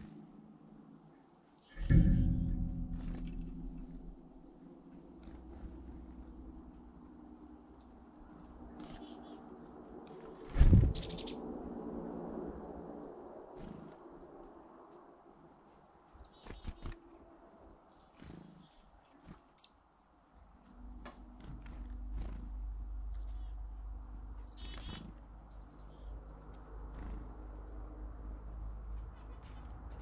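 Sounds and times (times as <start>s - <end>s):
low steady rumble: 1.8s - 13.0s, 20.5s - 30.0s
small birds chirping: 3.0s - 30.0s.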